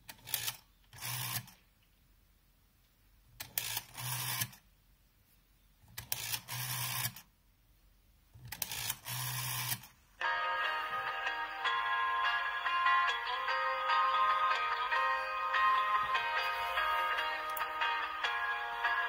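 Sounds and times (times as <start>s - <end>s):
rotary dial whirring back: 3.4s - 4.6s, 8.5s - 9.9s.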